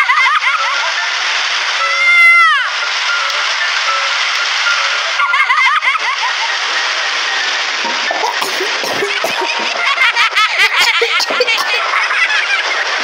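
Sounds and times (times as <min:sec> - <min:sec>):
rain sound effect: 0:00.0 - 0:13.0
cartoon voices laughing: 0:08.0 - 0:13.0.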